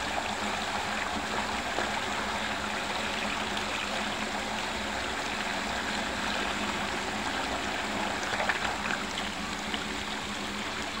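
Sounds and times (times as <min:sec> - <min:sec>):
faint steady hum: 0:00.0 - 0:11.0
water rushing into whirlpool: 0:00.0 - 0:11.0.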